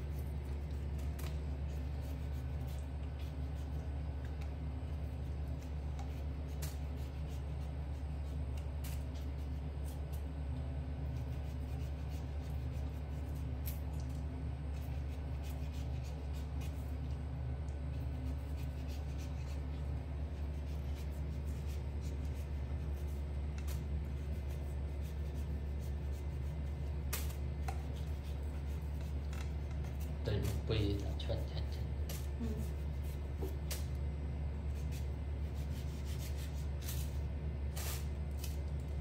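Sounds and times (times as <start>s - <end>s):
knife scraping peeling mango: 0.0s - 10.2s, 11.0s - 34.0s, 34.6s - 39.0s
steady low hum: 0.0s - 39.0s.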